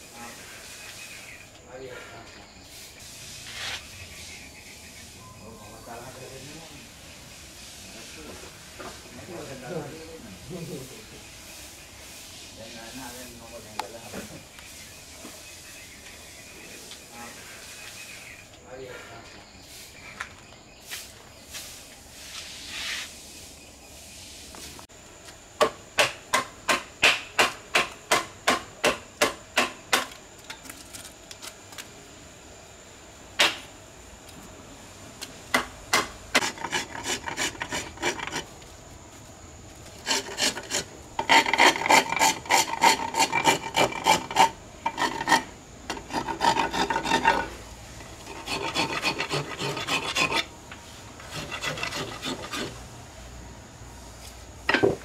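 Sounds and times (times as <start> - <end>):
hand file scraping wood: 36.3 - 38.6, 40.0 - 50.5, 51.2 - 52.8.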